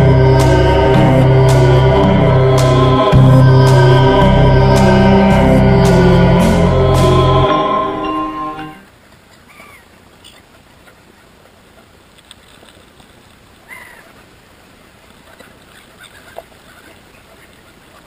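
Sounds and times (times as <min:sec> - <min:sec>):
music: 0:00.0 - 0:08.8.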